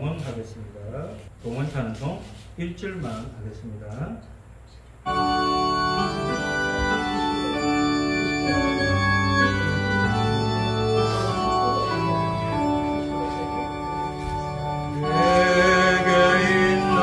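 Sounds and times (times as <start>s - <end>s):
organ playing sustained chords: 5.0s - 17.0s.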